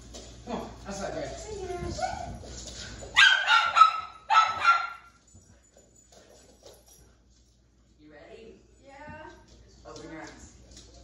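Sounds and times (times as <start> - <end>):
dog barking excitedly: 3.2 - 5.2.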